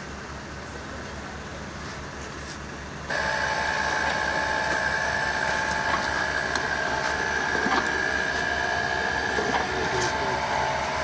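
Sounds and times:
machine running with high whine: 0:03.1 - 0:11.0.

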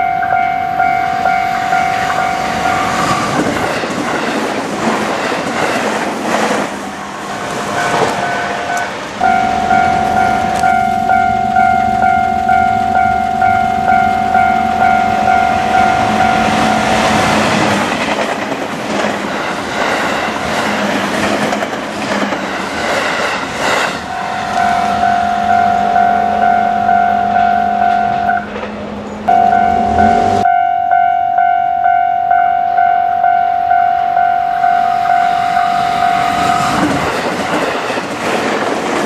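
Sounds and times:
level crossing bell ringing: 0:00.0 - 0:03.2, 0:07.8 - 0:17.1, 0:24.1 - 0:28.5, 0:29.2 - 0:36.8
train wheels clacking over rails: 0:01.2 - 0:10.9, 0:13.8 - 0:25.7, 0:35.4 - 0:39.0.

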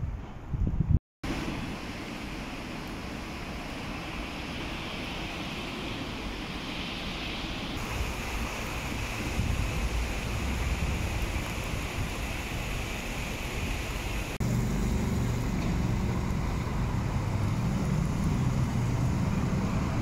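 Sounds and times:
rain hissing: 0:01.2 - 0:20.0
wet road noise: 0:01.2 - 0:20.0
low vehicle rumble: 0:14.4 - 0:20.0.

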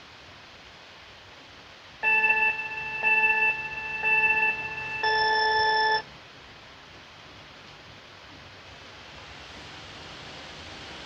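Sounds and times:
laptop cooling fan hiss: 0:00.0 - 0:11.0
electronic countdown beeps: 0:02.0 - 0:06.0.

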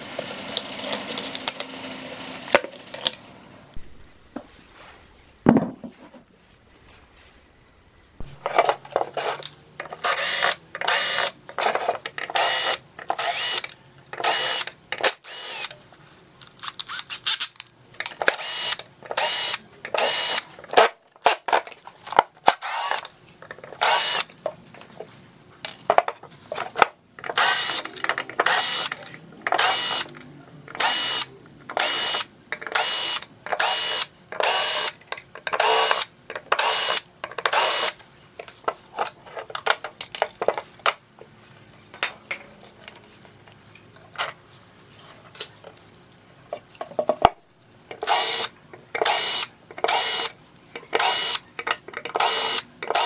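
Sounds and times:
cordless drill whirring: 0:08.8 - 0:15.7, 0:18.2 - 0:20.9, 0:22.4 - 0:23.1, 0:23.8 - 0:24.3, 0:27.4 - 0:28.9, 0:29.6 - 0:30.1, 0:30.7 - 0:35.0, 0:35.6 - 0:38.0, 0:48.0 - 0:50.3, 0:51.0 - 0:51.4, 0:52.2 - 0:53.0.

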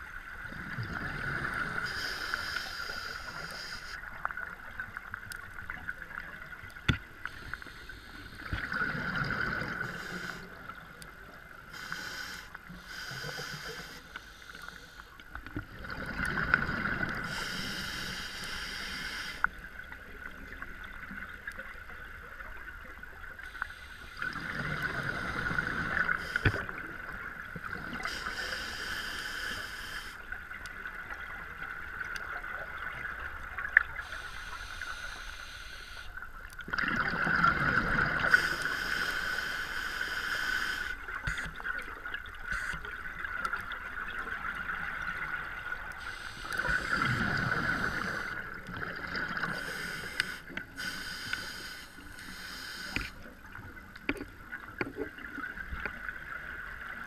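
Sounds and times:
regulator inhale hiss: 0:01.1 - 0:04.0, 0:07.2 - 0:08.8, 0:09.5 - 0:10.8, 0:11.7 - 0:15.3, 0:17.1 - 0:19.6, 0:23.4 - 0:26.8, 0:27.9 - 0:30.3, 0:34.0 - 0:36.2, 0:38.2 - 0:41.6, 0:46.0 - 0:48.6, 0:49.2 - 0:53.3.

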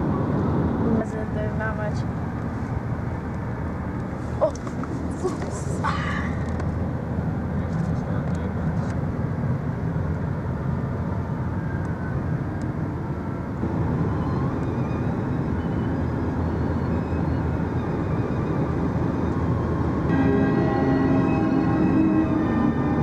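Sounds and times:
car road noise from inside: 0:00.0 - 0:23.0.

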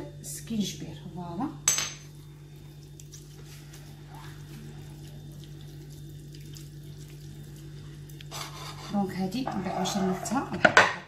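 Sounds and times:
steady low hum: 0:00.0 - 0:11.0
liquid swishing in bowl: 0:02.5 - 0:10.4.

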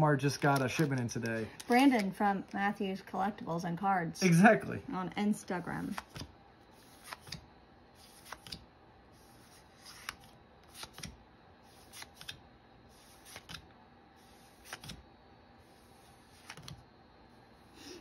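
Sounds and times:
cards sliding with quiet snap: 0:05.9 - 0:15.0, 0:15.7 - 0:16.8.

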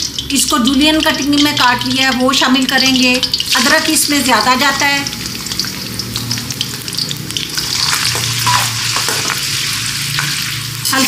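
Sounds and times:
ginger sizzling in hot oil: 0:00.0 - 0:11.0
metal spoon stirring: 0:05.3 - 0:11.0.

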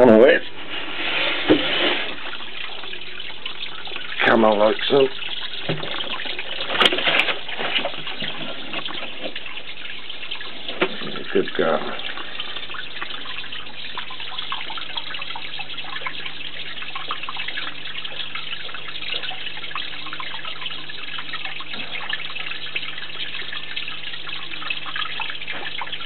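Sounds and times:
waterfall trickling and splashing: 0:00.0 - 0:26.0.

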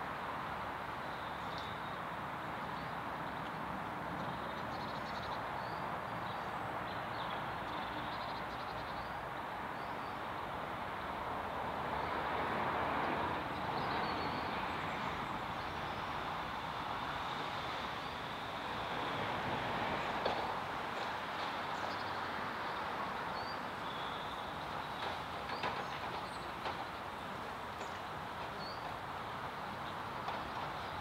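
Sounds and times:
outdoor background rush: 0:00.0 - 0:31.0.

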